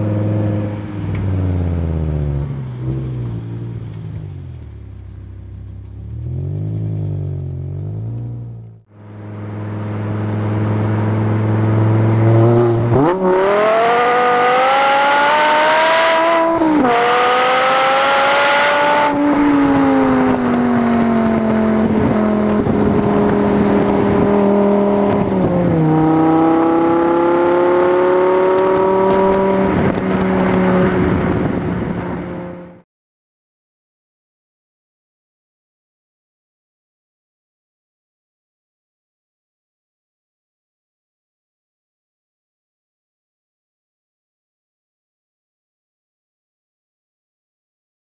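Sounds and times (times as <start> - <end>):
car engine accelerating: 0.0 - 32.8.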